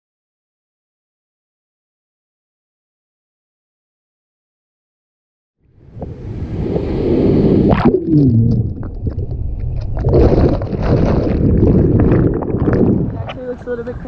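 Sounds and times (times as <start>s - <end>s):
muffled rush of water: 5.8s - 14.0s.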